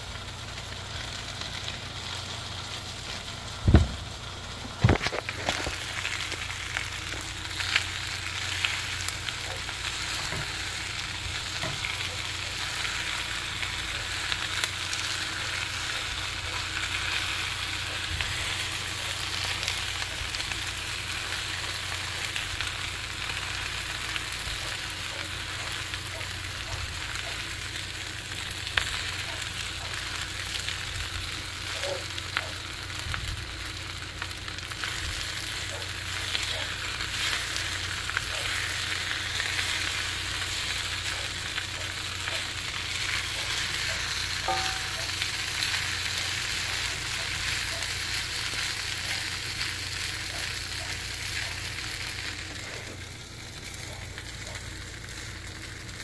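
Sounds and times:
rice and onions sizzling in wok: 0.0s - 56.0s.

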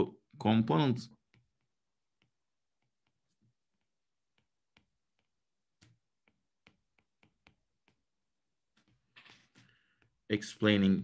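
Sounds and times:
stylus tapping on tablet: 1.2s - 10.3s.

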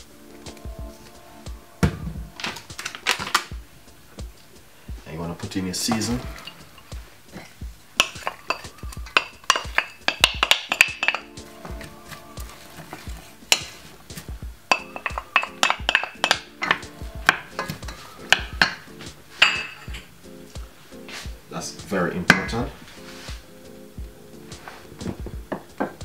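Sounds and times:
background music with beat: 0.0s - 26.0s
wooden spoon scraping metal pot: 5.1s - 20.0s.

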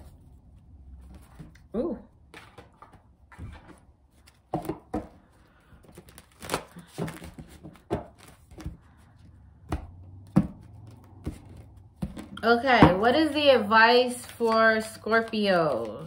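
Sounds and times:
cards being shuffled: 5.8s - 12.4s, 14.0s - 16.0s.

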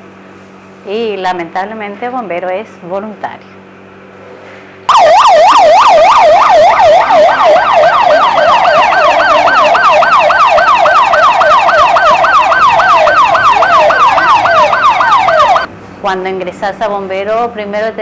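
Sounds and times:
ambulance siren yelping: 4.9s - 15.7s.

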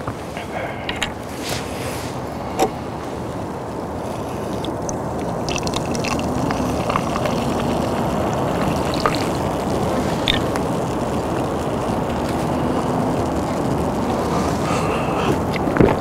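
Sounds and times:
low background rumble: 0.0s - 16.0s
soda pouring into a mug: 4.5s - 13.2s.

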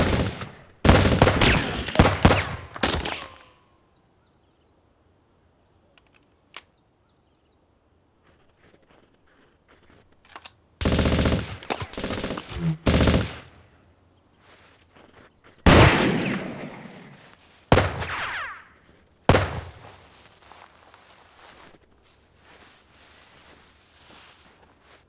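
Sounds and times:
automatic gunfire bursts: 0.0s - 3.2s, 10.8s - 13.5s
loud gunshots echoing: 0.0s - 3.4s, 10.8s - 13.5s, 15.6s - 18.7s, 19.3s - 19.8s.

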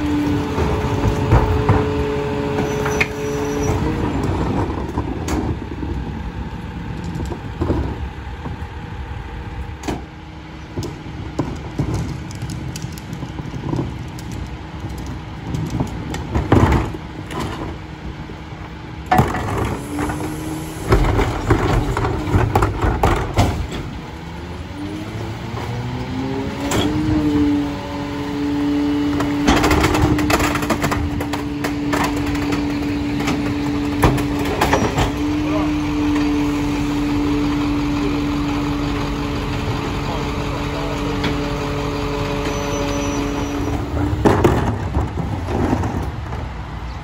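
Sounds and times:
garbage truck engine running: 0.0s - 47.0s
knocks and clanks: 0.4s - 5.7s, 15.0s - 17.8s, 19.1s - 24.1s, 29.1s - 36.4s, 43.3s - 46.5s.

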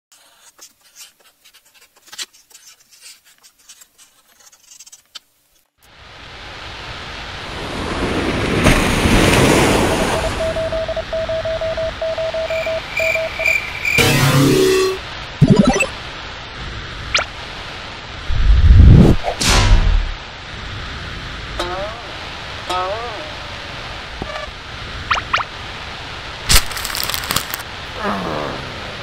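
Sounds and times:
short repeated beeps: 10.2s - 15.9s
static-like noise: 12.5s - 29.0s
faint crackling and clicks: 26.5s - 27.6s.

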